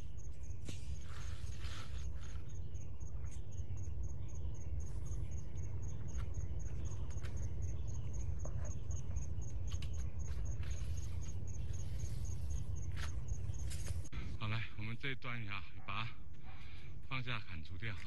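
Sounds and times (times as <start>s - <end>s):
insect chirping: 0.0s - 14.2s
low steady rumble: 0.0s - 15.4s.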